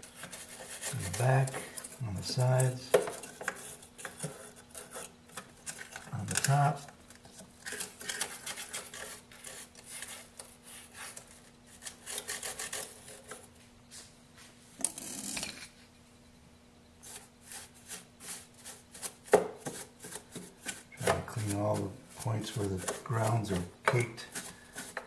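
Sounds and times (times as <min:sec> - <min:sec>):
brush sweeping plastic: 0:00.0 - 0:05.1, 0:07.7 - 0:13.4, 0:17.0 - 0:25.0.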